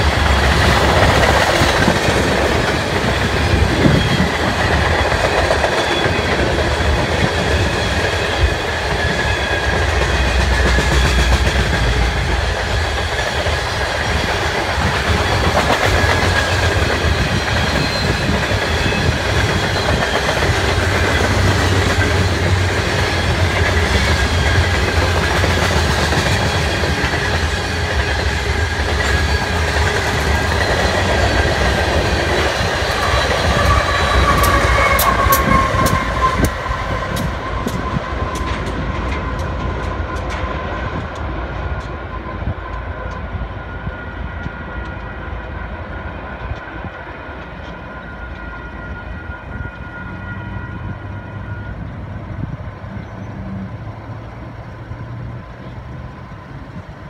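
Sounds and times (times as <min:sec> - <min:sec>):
high wheel squeal: 0:00.0 - 0:12.1, 0:14.8 - 0:22.4, 0:28.8 - 0:40.3
diesel locomotive engine: 0:00.0 - 0:57.0
train wheels rumbling over rail joints: 0:00.0 - 0:57.0.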